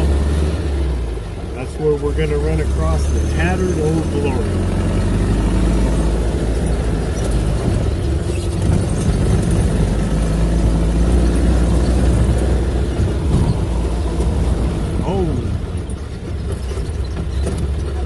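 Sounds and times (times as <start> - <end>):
tyres on dirt track: 0.0 - 18.0
vehicle engine running: 0.0 - 18.0.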